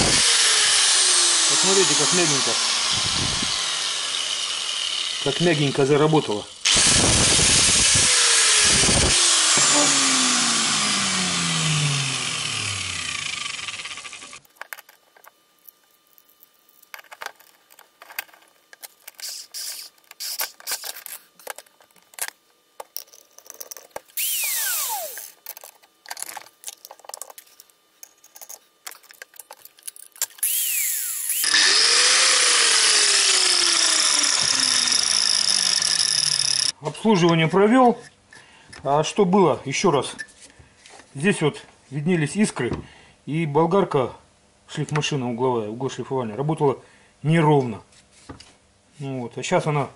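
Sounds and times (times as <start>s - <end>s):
angle grinder motor running: 0.0s - 14.5s, 19.2s - 21.2s, 24.2s - 25.7s, 30.4s - 36.8s
clicks and knocks of handling: 14.4s - 24.2s, 25.3s - 30.4s.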